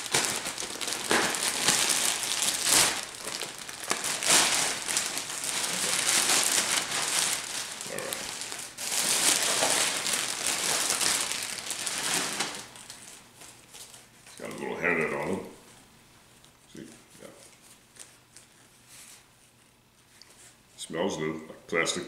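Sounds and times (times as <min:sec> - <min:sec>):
plastic bag crinkling: 0:00.0 - 0:15.4.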